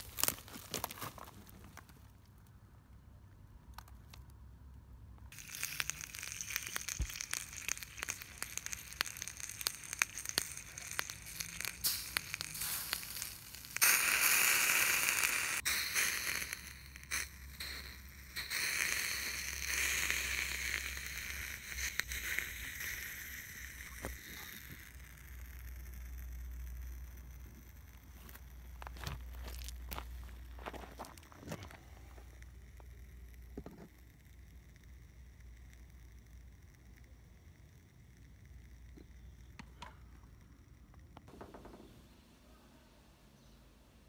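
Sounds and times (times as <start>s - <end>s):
crackling handling noise: 0.0s - 42.2s
water hissing on hot motor: 5.3s - 26.7s.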